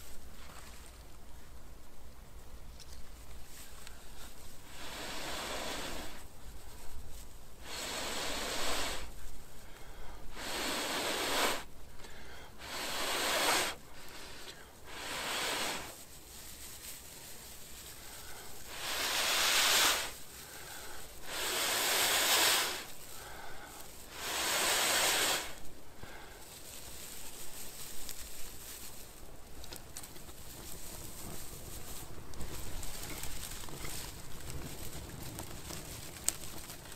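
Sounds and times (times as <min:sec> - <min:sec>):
person drawing breath: 0:03.8 - 0:06.9, 0:07.6 - 0:16.0, 0:17.9 - 0:26.6
person blowing out hard: 0:10.3 - 0:11.7, 0:12.6 - 0:13.8, 0:18.7 - 0:20.2, 0:21.2 - 0:22.9, 0:24.1 - 0:25.6.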